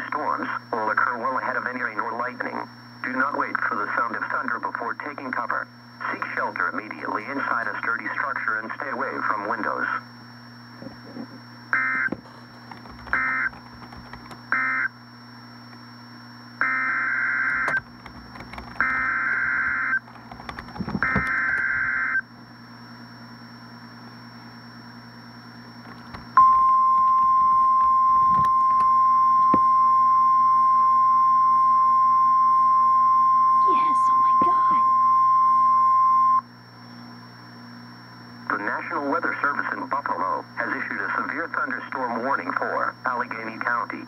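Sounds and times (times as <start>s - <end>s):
single-pitch alarm tone: 11.7s - 12.1s, 13.2s - 13.5s, 14.5s - 15.0s, 16.6s - 17.8s, 18.8s - 20.0s, 21.0s - 22.3s, 26.4s - 36.5s
buzzy data bursts: 12.8s - 14.9s, 16.6s - 22.2s.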